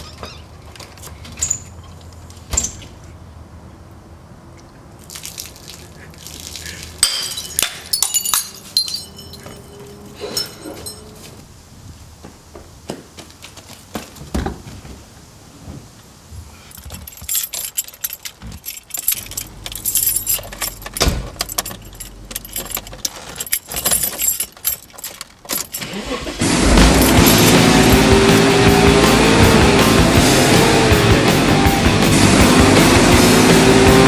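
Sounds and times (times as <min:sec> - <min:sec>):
keys jangling: 0:07.0 - 0:11.4, 0:16.7 - 0:26.0, 0:26.9 - 0:27.6
loud steady sound: 0:26.3 - 0:34.0.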